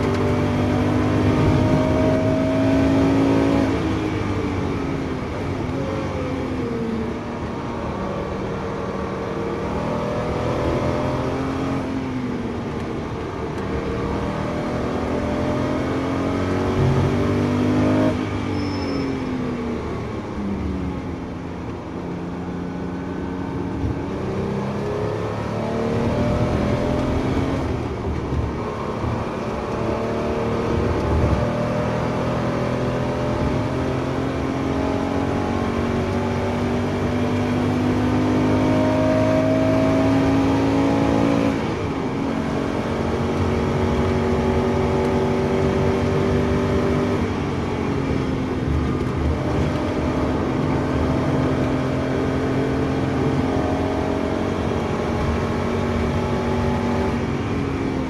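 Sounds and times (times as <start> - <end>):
car engine revving: 0.0 - 18.6, 22.2 - 58.0.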